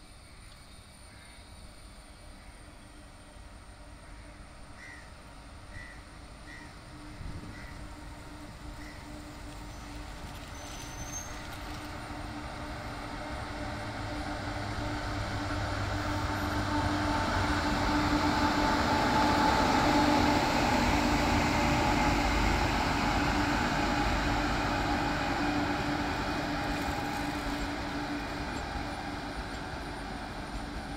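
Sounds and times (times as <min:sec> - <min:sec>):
train passing: 0:01.0 - 0:30.9
locomotive hum: 0:01.8 - 0:30.9.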